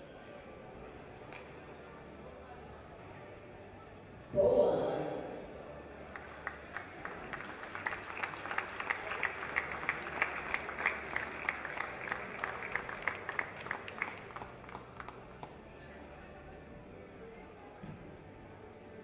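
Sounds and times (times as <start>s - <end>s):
low crowd murmur: 0.0s - 19.0s
audience clapping in time: 6.1s - 15.6s.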